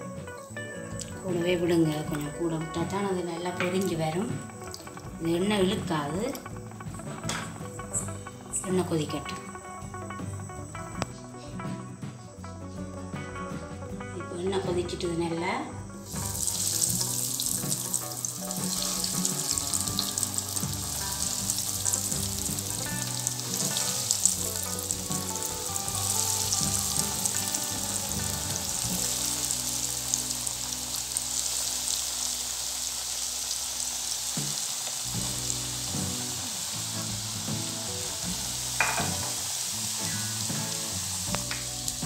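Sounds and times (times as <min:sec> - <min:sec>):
cutlets sizzling in oil: 0:16.0 - 0:42.0.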